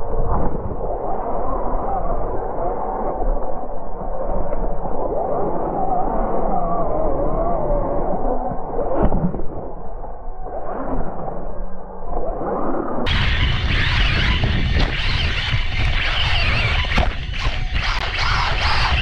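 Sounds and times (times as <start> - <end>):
rushing wind and dirt: 0.0 - 2.2, 13.0 - 19.0
electric toy motorbike on dirt: 13.1 - 19.0.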